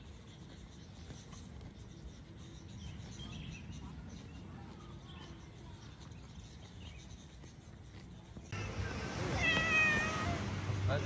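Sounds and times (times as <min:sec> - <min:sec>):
faint outdoor background: 0:00.0 - 0:11.0
cat meowing: 0:09.3 - 0:10.4.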